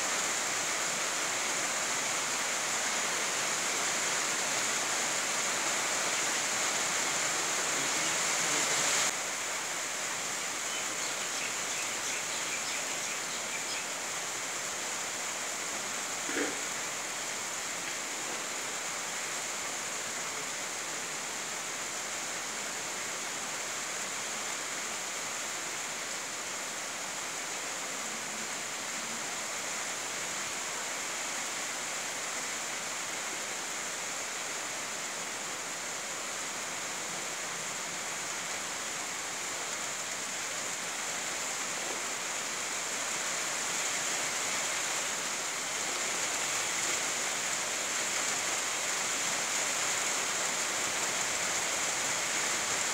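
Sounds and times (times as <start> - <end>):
steady rainfall: 0.0 - 52.9.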